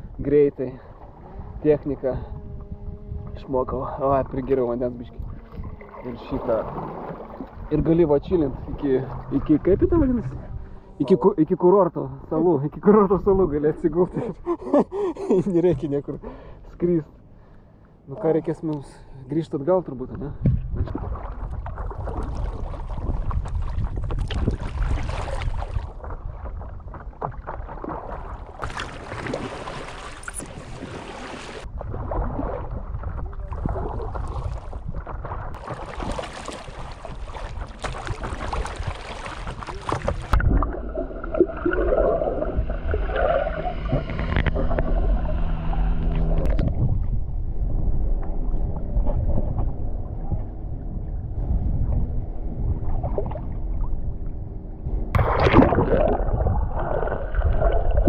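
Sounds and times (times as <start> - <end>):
wind noise: 0.0 - 11.3, 20.0 - 58.0
water sloshing and splashing: 0.8 - 11.2, 19.8 - 58.0
steady multi-tone hum: 40.4 - 46.5.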